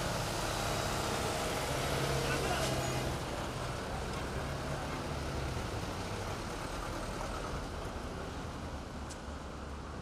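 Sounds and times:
cars and vans driving past: 0.0s - 10.0s.

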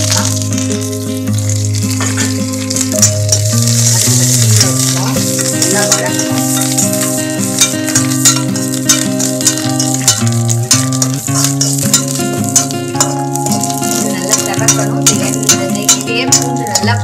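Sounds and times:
background music with held notes: 0.0s - 17.0s
garlic sizzling in hot ghee: 0.0s - 17.0s
spoon clicking against pan: 7.6s - 17.0s.

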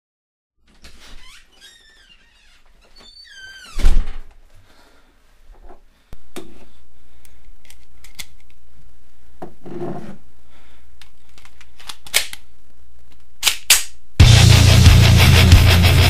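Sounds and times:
heavy rock music: 14.2s - 16.0s.

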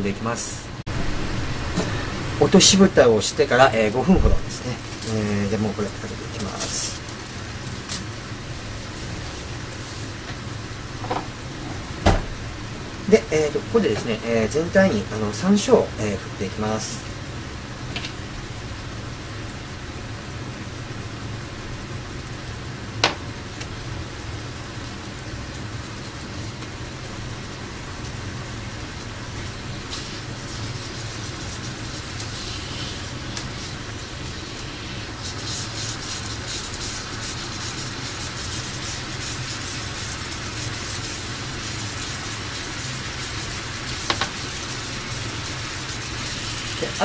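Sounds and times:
sauce sizzling in a frying pan: 0.4s - 47.0s
low hum: 0.6s - 2.5s.

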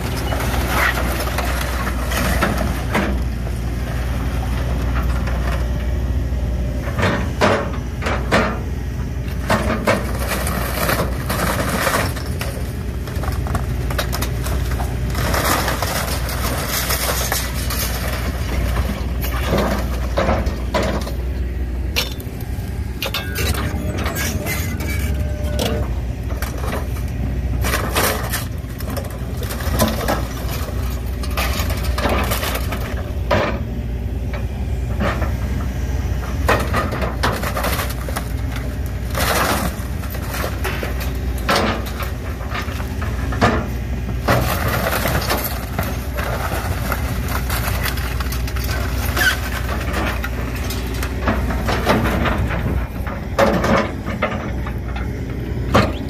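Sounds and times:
excavator diesel engine running: 0.0s - 56.0s
crunching and cracking of wood: 9.3s - 21.3s, 21.9s - 33.6s, 34.9s - 56.0s.

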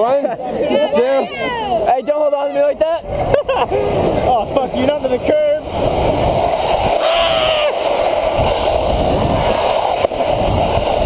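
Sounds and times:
sled scraping down icy road: 0.0s - 11.0s
wind buffeting microphone: 1.4s - 11.0s
person yelling: 7.0s - 7.8s.

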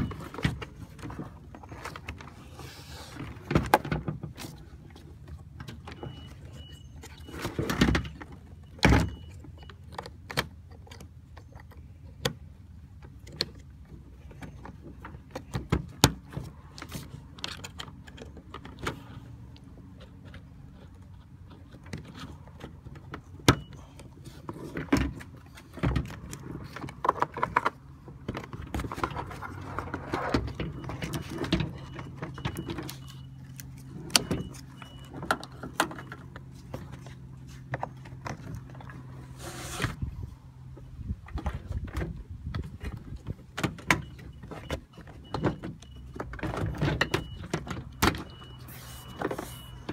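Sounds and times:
plastic parts clicking and rattling: 20.0s - 37.1s.

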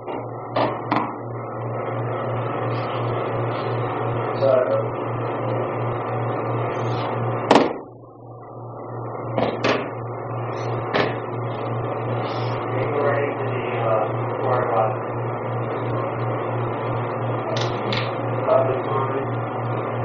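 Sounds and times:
electrical hum: 0.0s - 20.0s.

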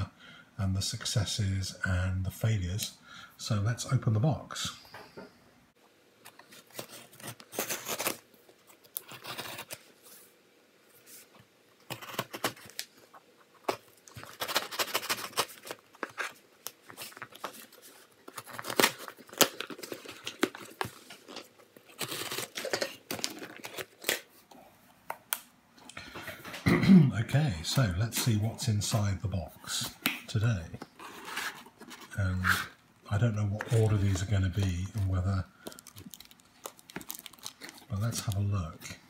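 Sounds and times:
cardboard ripping and rustling: 6.5s - 9.9s, 11.8s - 12.9s, 13.6s - 24.3s, 33.6s - 38.4s.

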